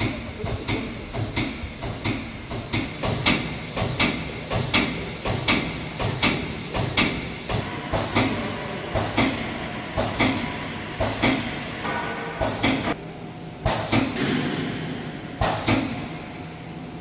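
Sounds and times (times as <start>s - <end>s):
pump clacking and hissing: 0.0s - 11.6s.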